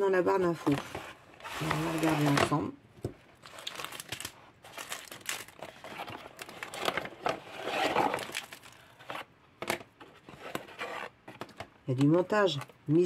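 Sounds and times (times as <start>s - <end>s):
plastic bags crinkling: 1.4s - 2.6s, 3.3s - 9.1s.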